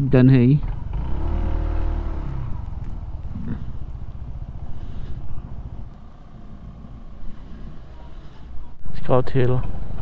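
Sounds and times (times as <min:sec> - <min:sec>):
scooter engine running: 0:00.6 - 0:07.0
wind rumble on microphone: 0:02.2 - 0:07.9.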